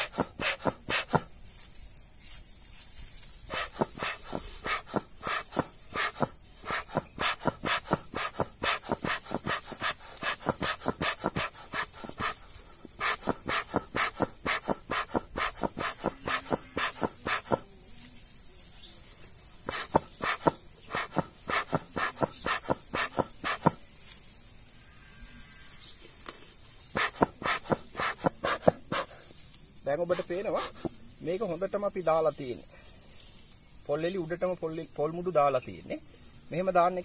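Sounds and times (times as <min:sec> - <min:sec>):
bellows puffing air: 0:00.0 - 0:01.4, 0:03.4 - 0:17.8, 0:19.6 - 0:23.8, 0:26.9 - 0:29.4, 0:30.0 - 0:31.0.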